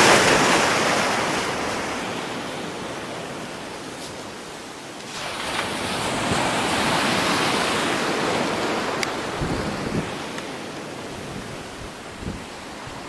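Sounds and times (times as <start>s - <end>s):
wave breaking and washing ashore: 0.0s - 13.0s
wind hitting microphone: 9.0s - 10.2s, 11.1s - 13.0s.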